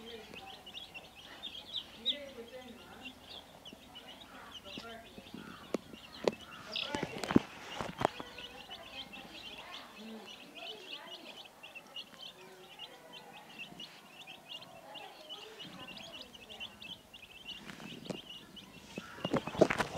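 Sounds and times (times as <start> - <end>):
chicks peeping: 0.0 - 19.9.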